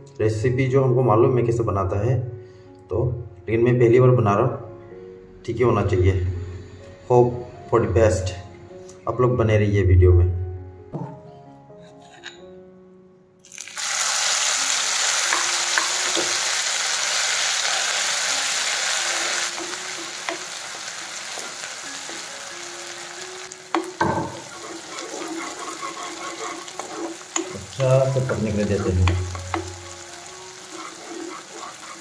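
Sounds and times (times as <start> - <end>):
metal spatula scraping pan: 11.8 - 12.4, 23.7 - 32.0
chilli sizzling in hot oil: 13.4 - 32.0.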